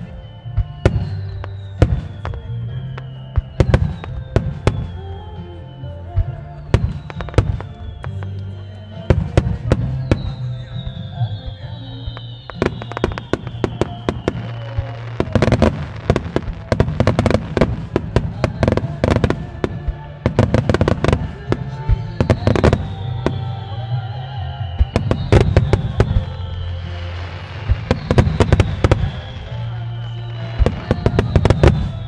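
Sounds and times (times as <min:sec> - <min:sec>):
fireworks bursting with sharp bangs: 0:00.0 - 0:32.0
music: 0:00.0 - 0:32.0.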